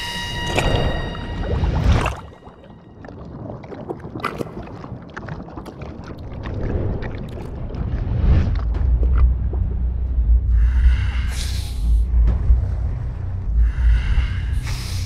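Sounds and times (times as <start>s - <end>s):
low rumbling ambience: 6.0s - 15.0s.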